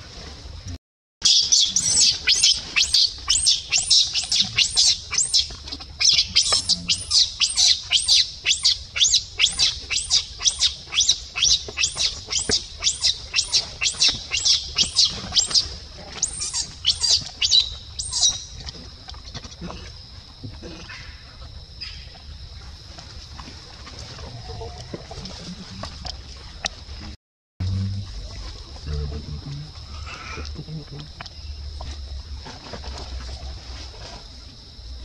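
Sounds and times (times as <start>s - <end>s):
infant monkey screaming: 1.3s - 18.4s.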